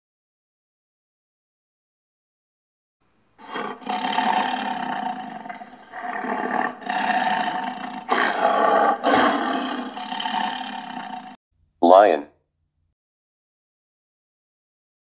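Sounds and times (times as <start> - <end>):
lion roaring and growling: 3.4 - 11.4.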